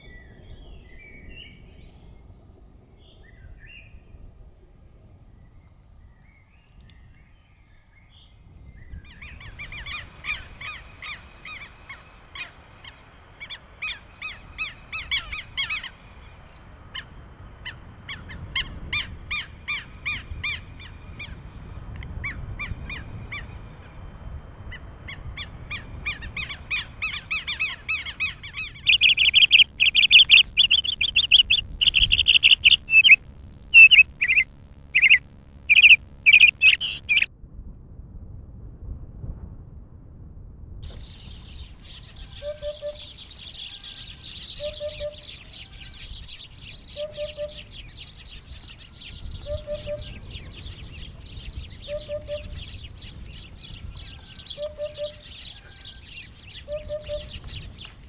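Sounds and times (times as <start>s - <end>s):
songbirds trilling: 24.7s - 37.3s, 40.9s - 58.0s
bird sharp chirps: 27.4s - 37.3s, 40.9s - 58.0s.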